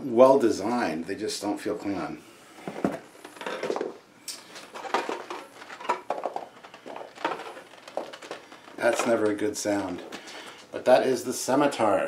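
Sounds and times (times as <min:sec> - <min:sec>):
loose pieces rattling in a box: 0:04.6 - 0:10.6.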